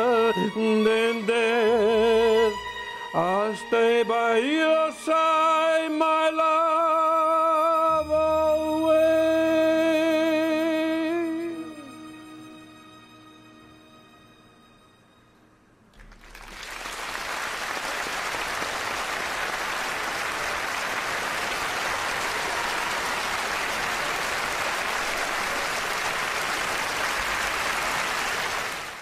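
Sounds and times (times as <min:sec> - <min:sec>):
large audience applauding: 0:15.9 - 0:29.0.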